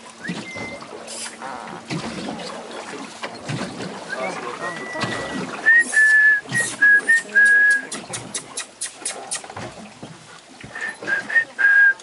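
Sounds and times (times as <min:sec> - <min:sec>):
person whistling short whistles: 0:05.7 - 0:07.9, 0:10.8 - 0:12.0
kissing lip-smacks: 0:06.6 - 0:09.5.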